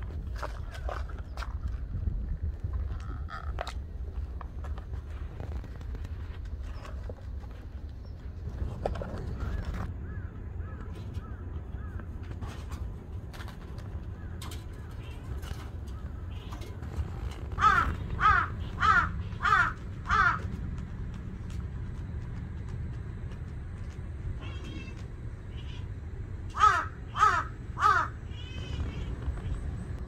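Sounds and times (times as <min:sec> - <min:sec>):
low steady rumble: 0:00.0 - 0:30.0
crows cawing: 0:09.4 - 0:12.0, 0:17.5 - 0:20.5, 0:26.5 - 0:29.0.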